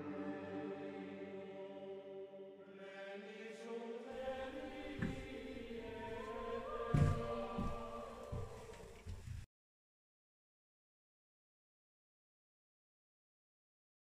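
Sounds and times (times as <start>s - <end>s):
slow chant-like music: 0.0s - 9.3s.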